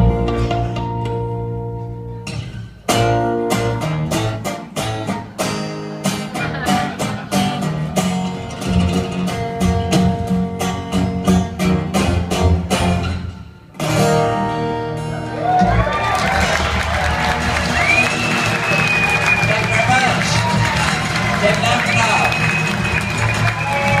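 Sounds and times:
plucked double bass: 0.0s - 15.9s
acoustic guitars strummed: 0.0s - 24.0s.

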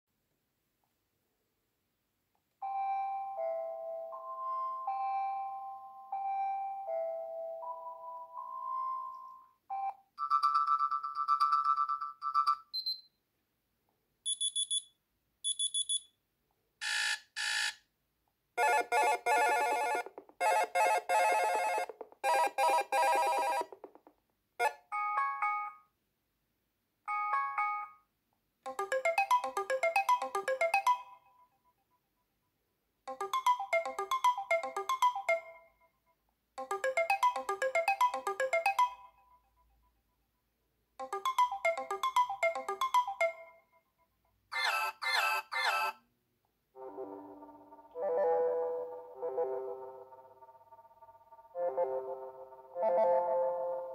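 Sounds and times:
melodic electronic chime pattern: 2.7s - 9.3s, 28.7s - 31.3s, 33.1s - 35.7s, 36.6s - 39.2s, 41.0s - 43.7s
short high beeps: 14.3s - 14.9s, 15.5s - 16.1s
harsh buzzer alarm: 16.8s - 17.8s.

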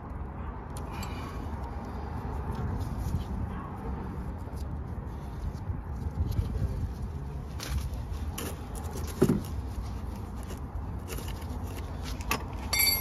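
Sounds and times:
metallic clink: 12.7s - 13.0s.

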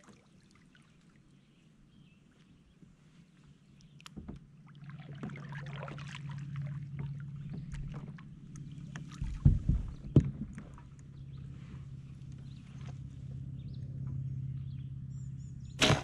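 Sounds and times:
low steady hum: 0.0s - 16.0s
paddle splashing in water: 4.1s - 13.2s
paddle knocking on kayak: 9.0s - 10.9s.

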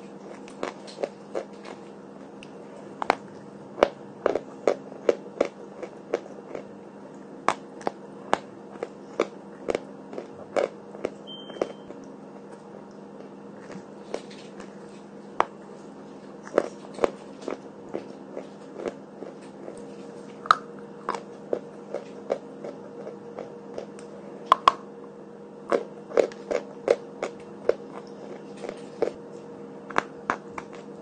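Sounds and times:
faint steady hum: 0.0s - 31.0s
chalk being chewed: 25.7s - 29.2s.

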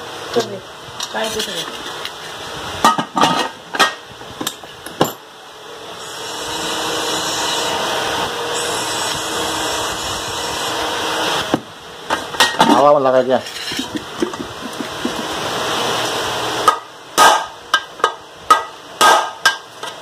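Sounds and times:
mechanical whirr with hiss: 6.0s - 11.7s.

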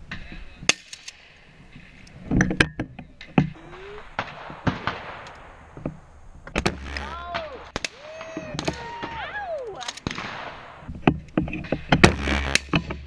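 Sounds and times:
gunshots: 3.7s - 5.8s, 6.6s - 10.9s.

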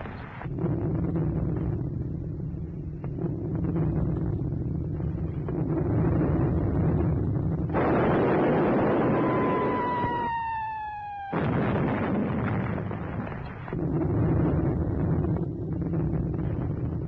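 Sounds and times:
low rumble: 0.0s - 17.0s
explosion: 6.9s - 17.0s
artillery blast: 7.7s - 13.8s
incoming shell whistle: 9.2s - 11.7s.

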